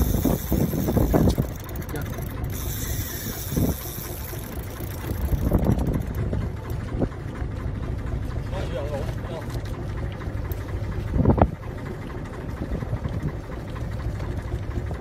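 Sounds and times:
mechanical rattling: 0.0s - 6.9s
wind buffeting microphone: 0.0s - 7.8s, 10.7s - 15.0s.

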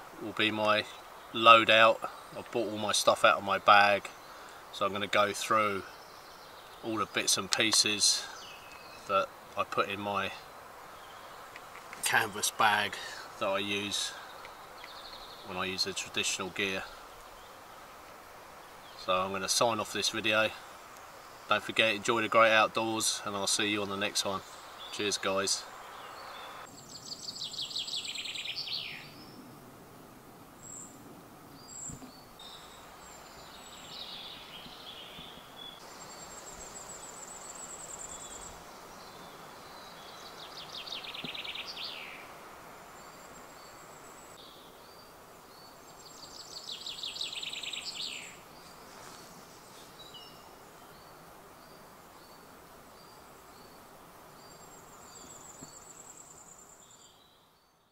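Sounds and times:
faint steady hiss: 0.0s - 57.9s
bird trilled song: 0.6s - 9.3s, 13.7s - 17.6s, 21.2s - 29.4s, 31.6s - 42.3s, 43.0s - 48.7s.

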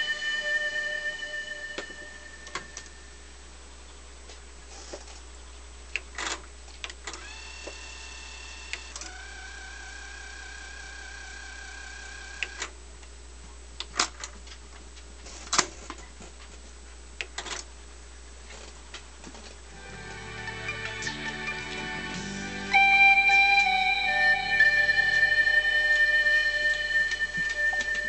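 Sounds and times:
tape reel motor whine: 7.2s - 12.7s.

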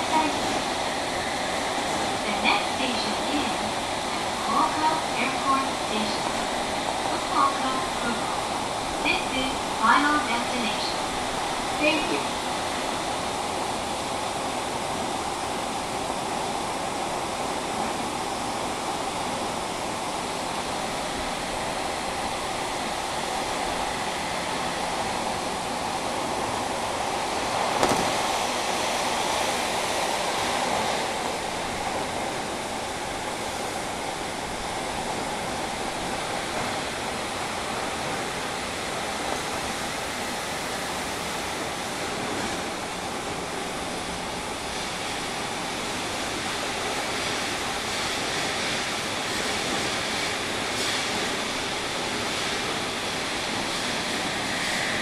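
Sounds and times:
train wheels roaring on rail: 0.0s - 55.0s
sharp knock: 27.8s - 28.2s.

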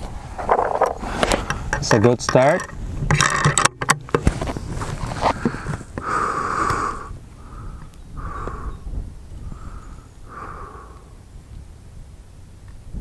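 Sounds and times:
person breathing slowly: 5.3s - 11.3s.

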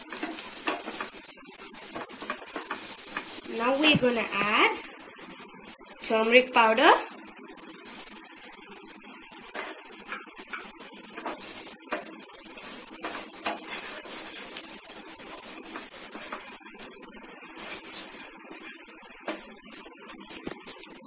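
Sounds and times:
wooden spatula scraping a pan: 0.0s - 4.6s, 9.5s - 20.8s
vegetables sizzling hiss: 0.0s - 21.0s.

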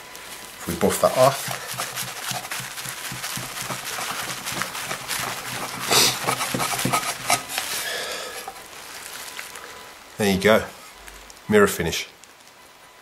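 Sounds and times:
cloth scrubbing metal casing: 0.7s - 8.6s.

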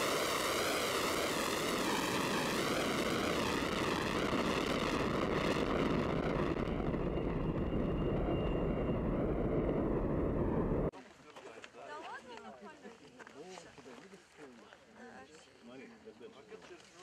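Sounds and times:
rocket motor roaring: 0.0s - 10.9s.

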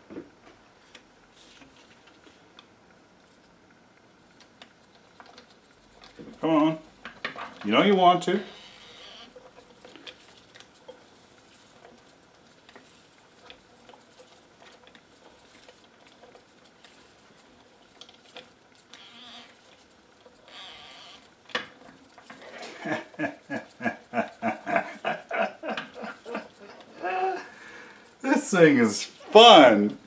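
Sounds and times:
tape squeaking on capstan: 8.4s - 10.3s, 20.4s - 21.3s.

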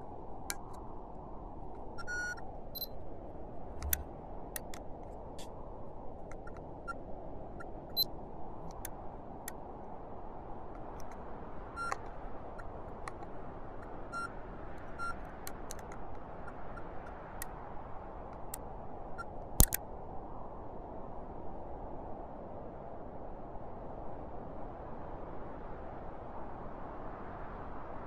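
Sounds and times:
steady low noise: 3.6s - 4.4s
sharp click: 3.8s - 4.0s, 19.6s - 19.8s
faint ticks: 11.8s - 12.2s.

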